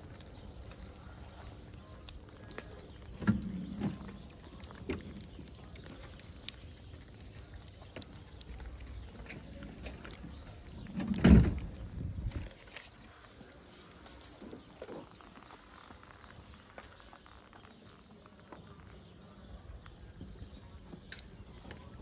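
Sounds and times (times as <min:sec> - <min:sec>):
cats chewing food: 0:00.0 - 0:11.0, 0:11.6 - 0:22.0
thump and rustle: 0:10.9 - 0:12.5.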